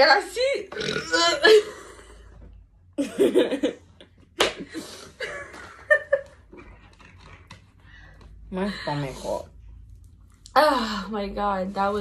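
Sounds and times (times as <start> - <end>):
young women laughing: 3.0 - 6.6.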